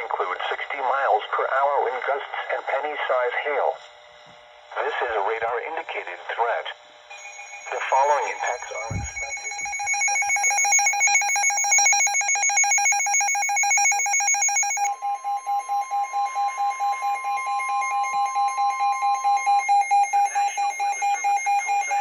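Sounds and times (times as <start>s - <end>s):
weather radio pulsing alarm beep: 4.8s - 22.0s
steady high warning tone: 5.0s - 22.0s.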